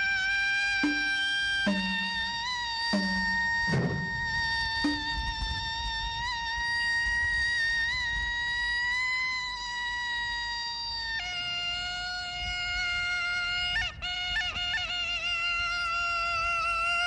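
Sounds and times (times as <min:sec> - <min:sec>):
reed pipe playing held notes: 0:00.6 - 0:05.5.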